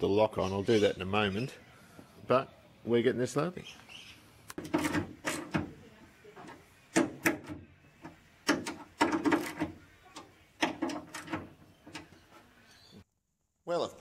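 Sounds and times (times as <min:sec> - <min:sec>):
metallic clicks and scrapes: 0:04.5 - 0:05.8, 0:06.4 - 0:12.6.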